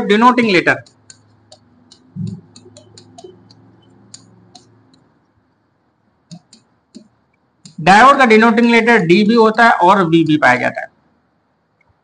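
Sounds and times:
marker tip tapping on board: 0:00.8 - 0:05.0, 0:06.3 - 0:07.8.

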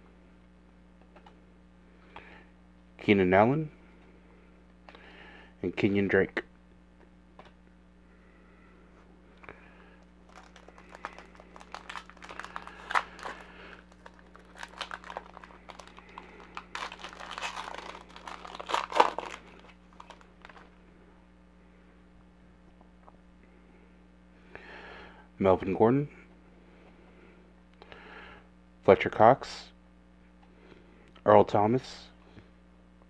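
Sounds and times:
wrapper tearing and crumpling: 0:10.2 - 0:20.7.

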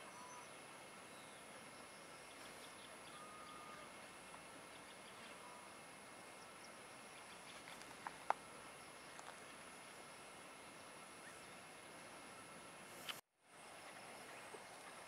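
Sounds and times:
faint bird whistles: 0:00.0 - 0:04.0
faint high-pitched tone: 0:00.0 - 0:04.3, 0:10.2 - 0:13.0
soft hiss: 0:00.0 - 0:15.0.

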